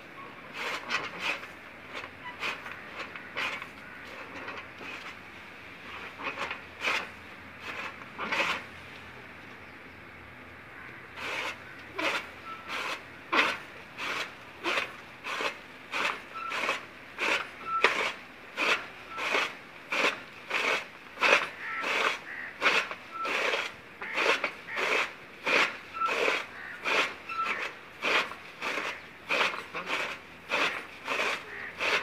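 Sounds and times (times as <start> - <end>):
chaff cutter crunching swishes: 0.5 - 5.2, 5.9 - 8.7, 11.2 - 32.0
faint squeak: 2.1 - 5.1, 11.2 - 13.6, 16.0 - 18.1, 25.9 - 32.0.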